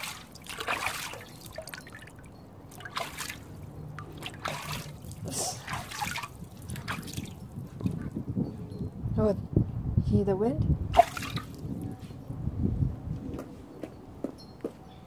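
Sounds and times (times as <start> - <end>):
child splashing water in tub: 0.0 - 8.1, 10.9 - 11.7.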